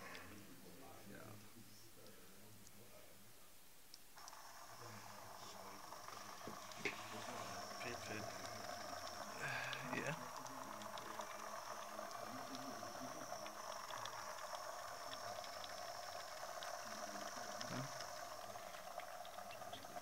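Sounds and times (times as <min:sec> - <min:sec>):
liquid streaming into plastic cup: 0:04.2 - 0:20.0
pump motor whining and clicking: 0:04.2 - 0:20.0.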